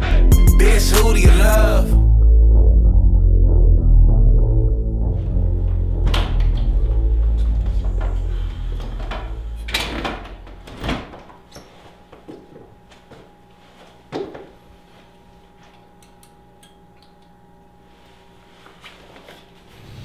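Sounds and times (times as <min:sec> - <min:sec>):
background music: 0:00.0 - 0:10.9
door opening and shutting: 0:05.8 - 0:11.8.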